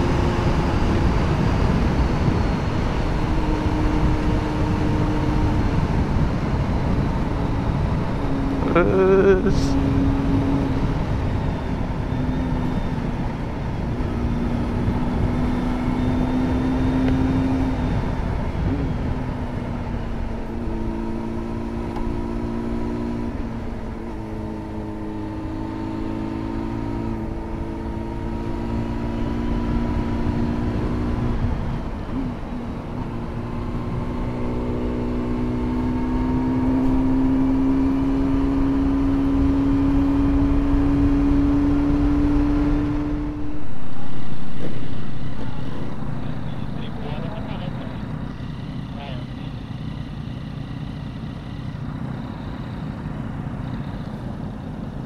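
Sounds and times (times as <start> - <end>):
wind and road rumble: 0.0 - 55.0
vehicle engine running: 28.7 - 55.0.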